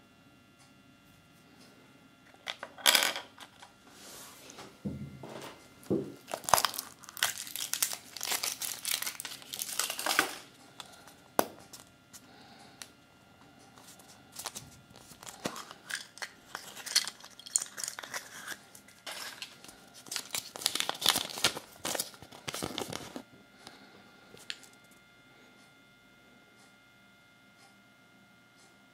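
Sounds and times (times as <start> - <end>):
foil and paper rustling and tearing: 6.2 - 11.0, 13.8 - 23.2.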